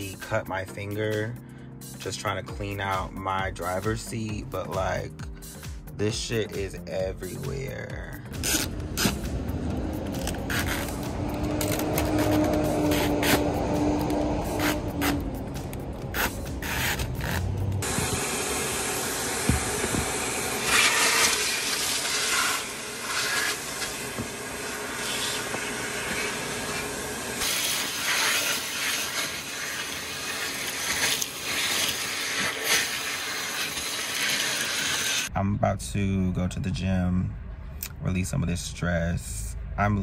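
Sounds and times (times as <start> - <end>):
vacuum cleaner sucking glass: 9.9 - 15.4, 16.1 - 35.3.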